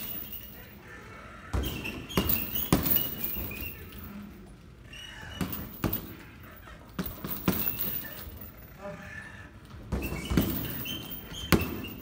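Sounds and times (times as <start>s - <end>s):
short high squeaks: 1.6s - 4.0s, 10.0s - 12.0s.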